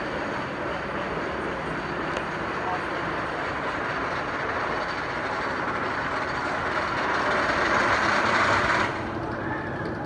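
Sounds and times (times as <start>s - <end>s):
roller coaster train on wooden track: 0.0s - 10.0s.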